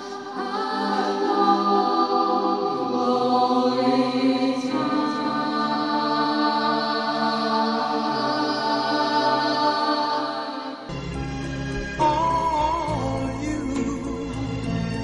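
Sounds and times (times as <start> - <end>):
choir singing held chords: 0.0 - 14.7.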